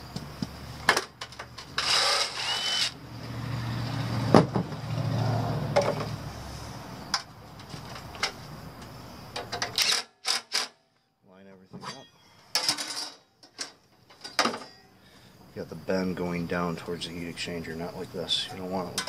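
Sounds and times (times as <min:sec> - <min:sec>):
drill driving screws into metal: 0:01.8 - 0:03.0, 0:09.7 - 0:10.8.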